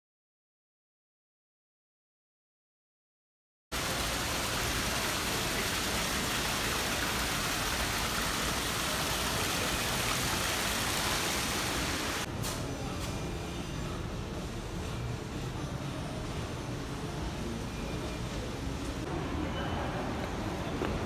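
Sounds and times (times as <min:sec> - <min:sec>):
fountain water splashing: 0:03.8 - 0:12.3.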